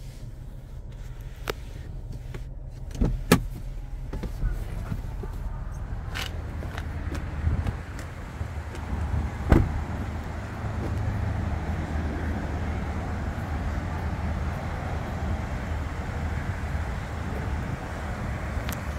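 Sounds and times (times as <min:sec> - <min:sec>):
traffic rumble: 0:00.0 - 0:18.9
car door shutting: 0:00.9 - 0:10.2.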